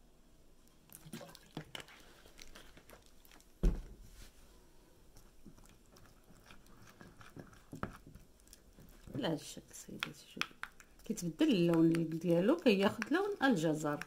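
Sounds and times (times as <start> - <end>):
thump: 3.6 - 4.0.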